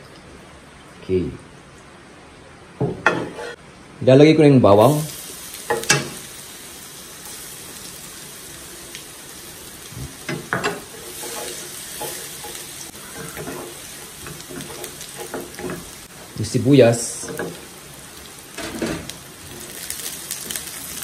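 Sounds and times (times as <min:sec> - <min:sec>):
spatula knocking and scraping pan: 0:02.8 - 0:03.6, 0:10.2 - 0:16.0
garlic sizzling in oil: 0:04.8 - 0:21.0.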